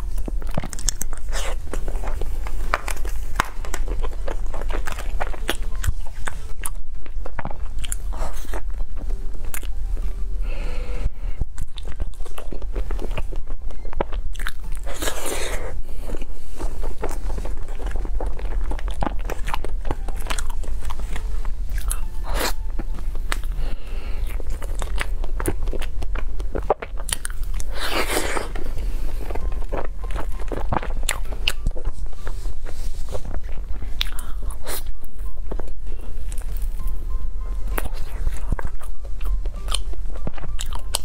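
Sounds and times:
biting and chewing cake: 0.0s - 41.0s
steady low hum: 0.0s - 41.0s.

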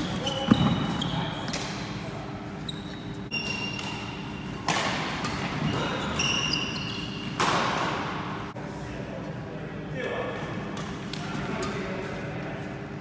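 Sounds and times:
shoes squeaking on wooden floor: 2.6s - 3.8s
racket hitting shuttlecock: 3.5s - 5.7s, 7.2s - 8.2s.

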